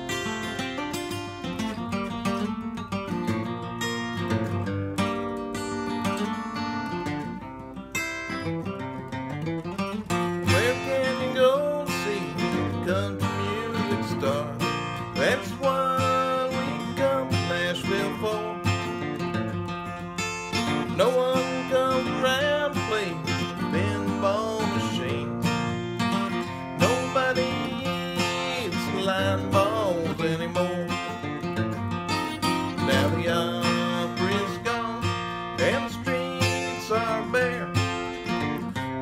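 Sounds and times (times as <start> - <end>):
acoustic guitar strumming rhythm: 0.0 - 39.0.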